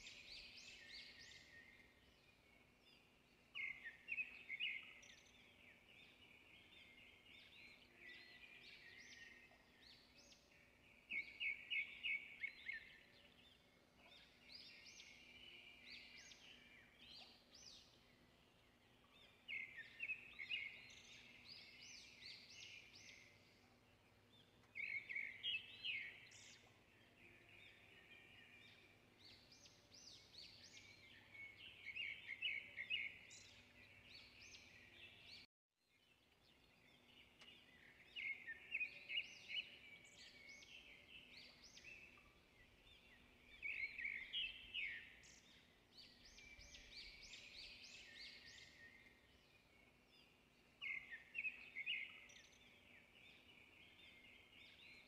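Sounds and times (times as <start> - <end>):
birds chirping and singing: 0.0 - 55.0.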